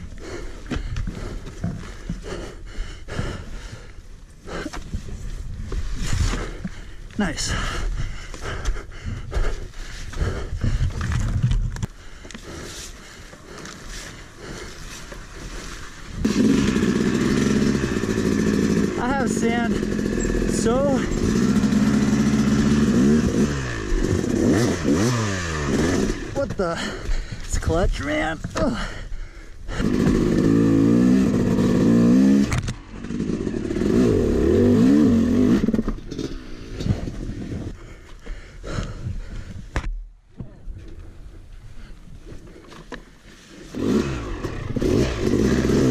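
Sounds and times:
dirt bike engine: 0:00.0 - 0:45.9
tyre and wind noise: 0:00.0 - 0:45.9
dirt bike engine revving: 0:14.4 - 0:27.0, 0:29.7 - 0:37.7, 0:43.7 - 0:45.9.

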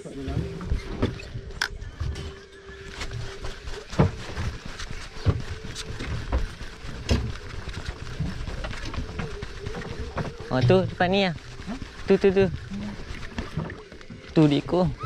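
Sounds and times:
boat engine humming: 0:00.0 - 0:15.0
rushing water: 0:03.2 - 0:15.0.

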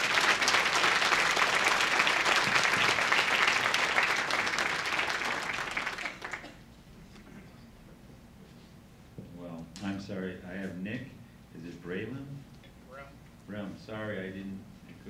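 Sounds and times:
audience applauding: 0:00.0 - 0:06.6.

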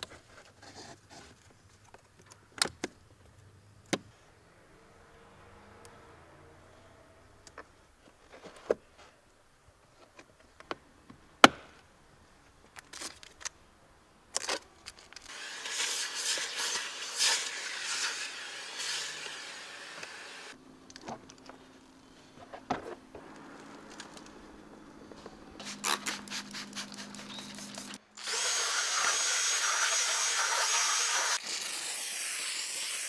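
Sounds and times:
air hissing from hose nozzle: 0:15.3 - 0:20.6, 0:25.6 - 0:33.0.

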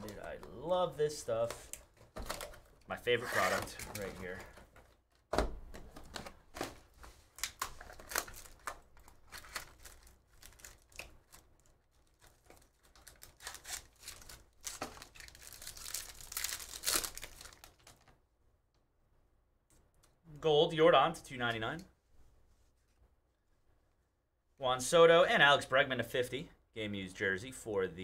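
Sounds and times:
plastic wrapper crinkling and tearing: 0:06.0 - 0:18.2.

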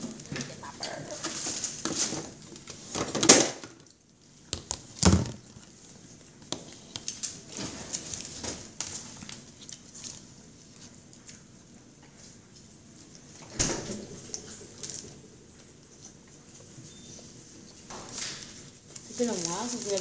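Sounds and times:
paper wrappers rustling: 0:04.8 - 0:13.3, 0:14.0 - 0:20.0
eating noises: 0:12.8 - 0:19.0.

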